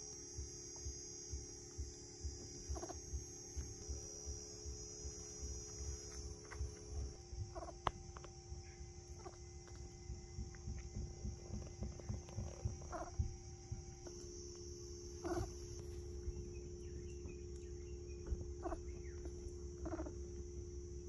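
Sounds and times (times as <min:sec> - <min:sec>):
baby monkey chirping: 0:02.6 - 0:03.0, 0:06.9 - 0:14.2, 0:15.2 - 0:20.2.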